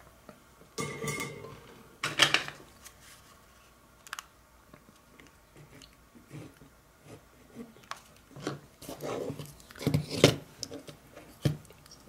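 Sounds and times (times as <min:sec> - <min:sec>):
tools scraping and rattling: 0:00.8 - 0:02.6.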